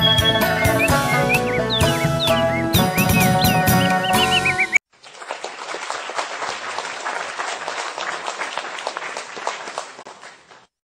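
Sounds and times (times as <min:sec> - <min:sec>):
crowd applauding: 0:04.9 - 0:10.7.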